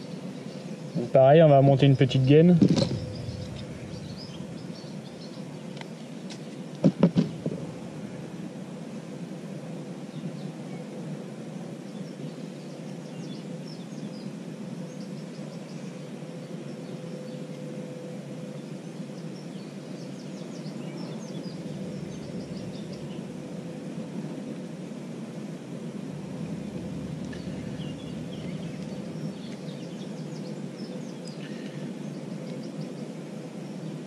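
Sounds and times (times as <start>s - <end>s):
small birds chirping: 0.0s - 6.6s, 18.5s - 23.5s, 26.7s - 34.0s
low background hum: 0.0s - 34.0s.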